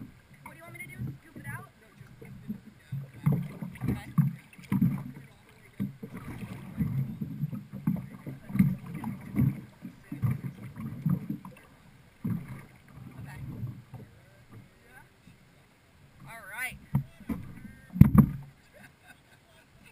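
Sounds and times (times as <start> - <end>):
water sloshing against hull: 0.0 - 19.9
sharp knocks: 16.8 - 18.5.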